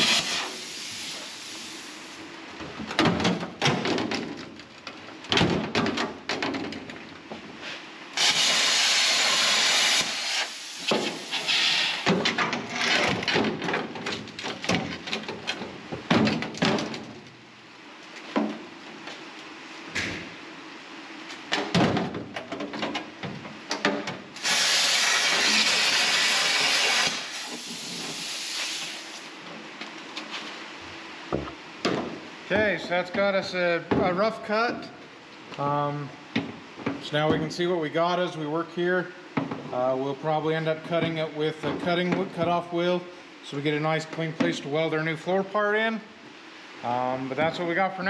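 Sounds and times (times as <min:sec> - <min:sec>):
plasma cutter hissing: 0:00.0 - 0:02.2, 0:08.2 - 0:12.1, 0:24.4 - 0:29.3
metal knocks and clatter: 0:02.7 - 0:07.4, 0:12.1 - 0:17.3.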